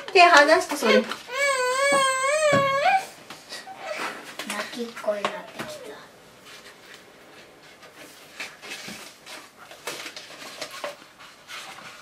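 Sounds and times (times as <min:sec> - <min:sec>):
child whimpering and sniffling: 0:01.3 - 0:04.3.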